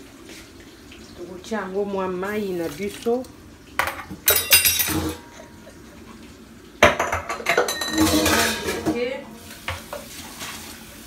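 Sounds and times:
metal pots clanking: 3.8 - 5.8, 6.8 - 10.5.

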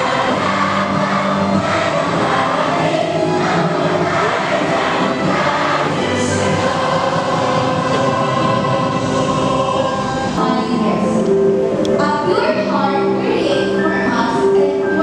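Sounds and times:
girls choir singing: 0.0 - 11.3.

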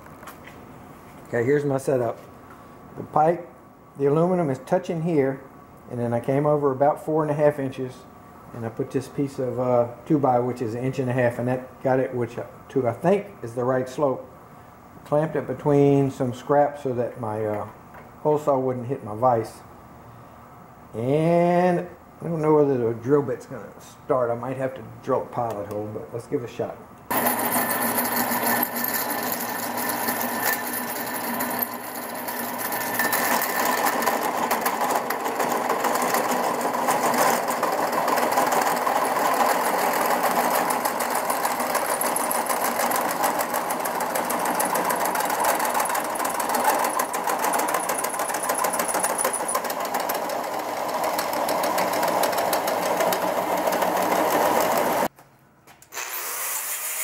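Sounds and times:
hole saw cutting metal: 27.1 - 55.1, 55.9 - 57.0
quiet grinding: 27.1 - 55.1.

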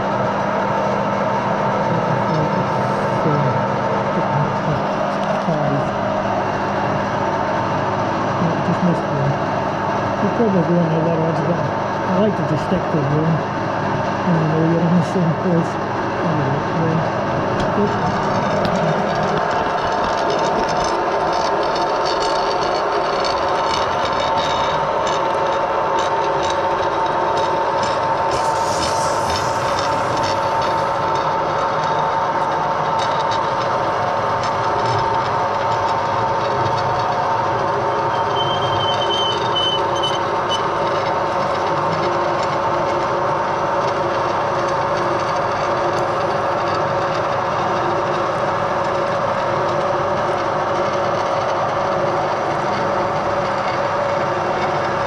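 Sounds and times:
metal lathe humming: 11.4 - 55.0.

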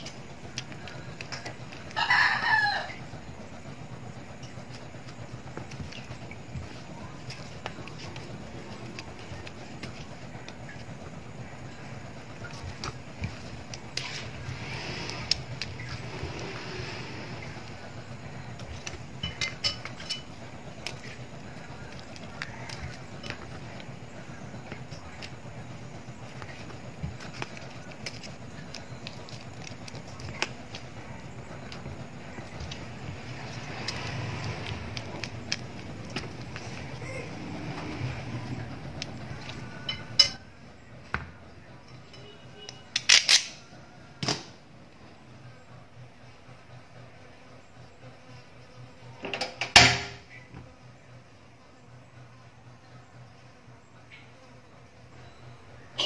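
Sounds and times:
low background noise: 0.0 - 56.0.

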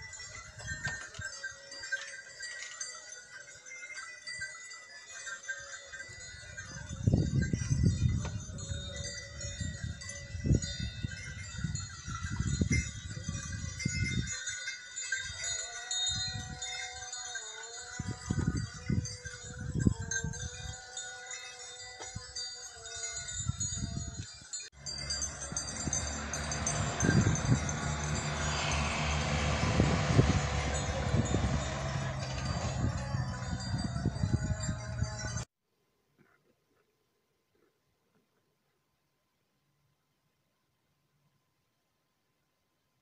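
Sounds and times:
livestock bells ringing: 0.0 - 35.5
low rumbles: 24.8 - 35.5.

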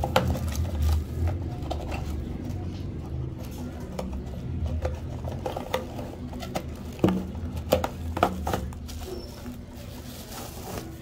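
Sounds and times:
cardboard box rustling: 4.8 - 11.0
bubble wrap crinkling: 5.8 - 11.0.

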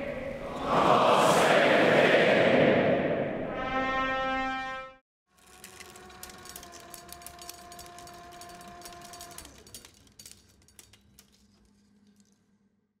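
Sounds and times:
reel machine humming: 5.3 - 10.9
crackling clicks: 5.3 - 12.6.

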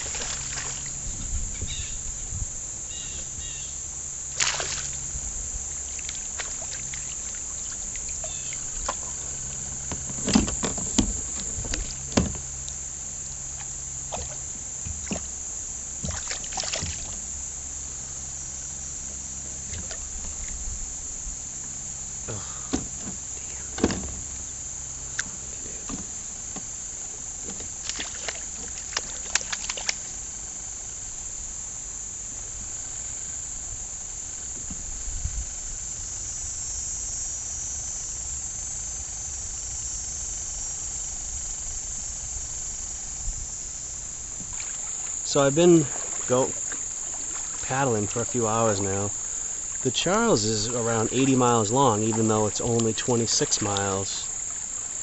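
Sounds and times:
paddle strokes in water: 0.0 - 1.8, 4.3 - 12.4, 13.5 - 15.3, 16.0 - 17.2, 27.4 - 30.2, 44.2 - 55.0
insects chirring: 0.0 - 55.0.

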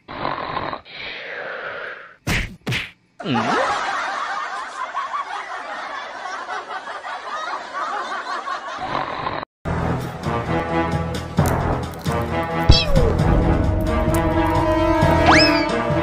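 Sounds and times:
music: 9.7 - 16.0.

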